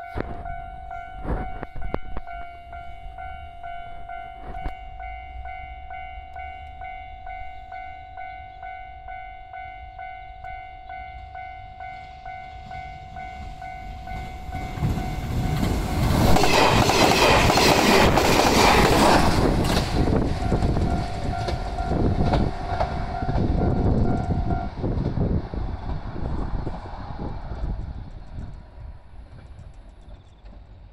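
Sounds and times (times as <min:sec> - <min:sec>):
level-crossing bell dinging: 0:00.0 - 0:16.1, 0:20.4 - 0:24.7
train rushing past: 0:00.0 - 0:30.9.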